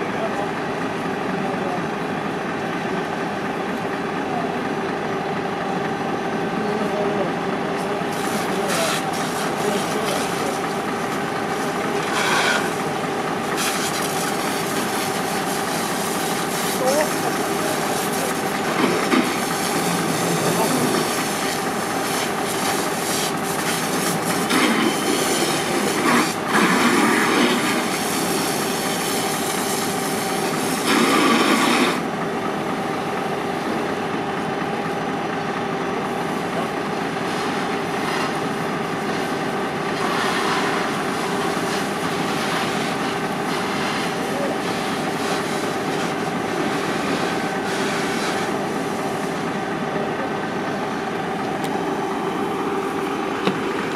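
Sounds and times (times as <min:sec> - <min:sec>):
engine drone: 0:00.0 - 0:53.9
water spray hissing: 0:13.5 - 0:18.5.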